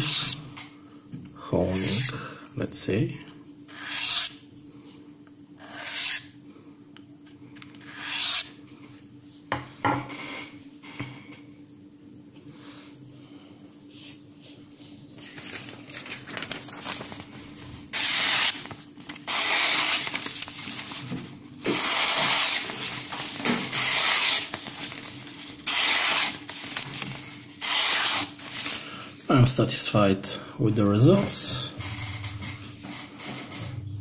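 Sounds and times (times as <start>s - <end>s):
paper rustling: 15.0s - 28.9s
knife slicing paper: 17.9s - 28.8s.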